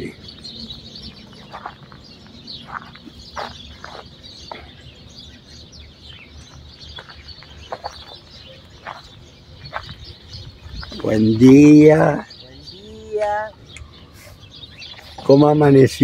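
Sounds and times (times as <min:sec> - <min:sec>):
steady low rumble: 0:00.0 - 0:11.4
small birds chirping: 0:00.0 - 0:16.0.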